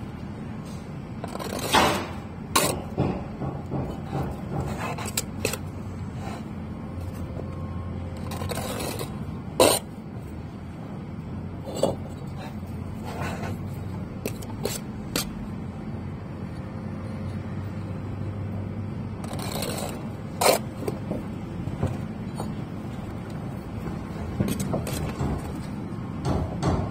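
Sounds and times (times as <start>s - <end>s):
trowel scraping bricks: 0.7s - 10.0s, 11.6s - 15.6s, 19.2s - 21.3s.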